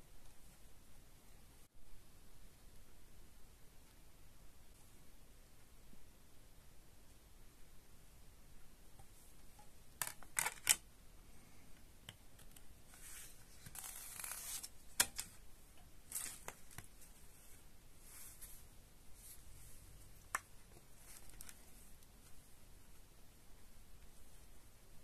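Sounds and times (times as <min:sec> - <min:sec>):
paper booklet rustling: 0:12.9 - 0:15.4, 0:16.0 - 0:22.3.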